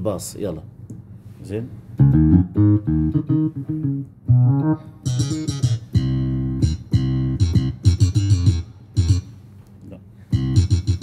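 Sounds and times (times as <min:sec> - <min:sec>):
plucked bass line on keyboard: 0:02.0 - 0:09.3, 0:10.3 - 0:11.0.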